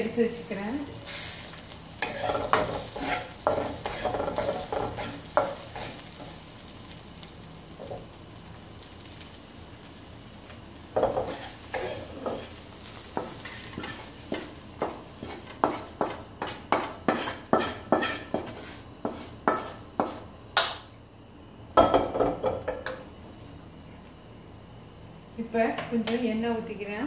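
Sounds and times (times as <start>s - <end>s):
pan clattering on grate: 2.0s - 6.0s
wooden spatula scraping pan: 2.0s - 6.0s, 11.0s - 20.2s.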